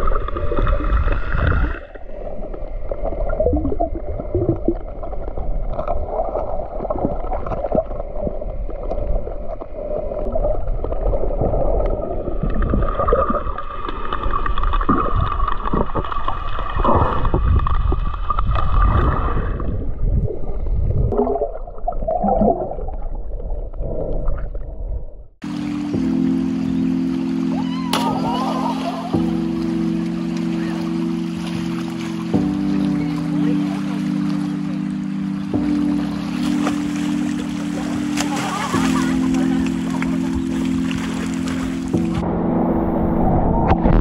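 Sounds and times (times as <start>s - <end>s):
underwater rumble of moving water: 0.0s - 44.0s
water gurgling: 0.0s - 44.0s
steady high hum: 25.4s - 44.0s.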